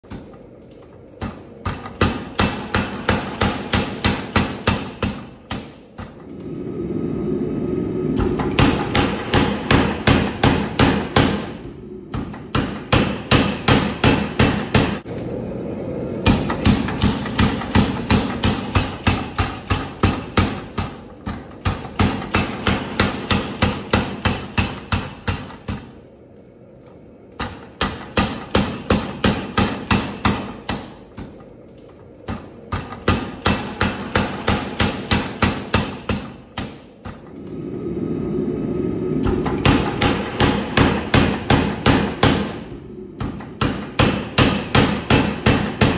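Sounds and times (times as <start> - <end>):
power hammer pounding steel: 1.2 - 6.2, 8.2 - 15.1, 16.2 - 26.0, 27.3 - 31.4, 32.2 - 37.2, 39.2 - 45.9.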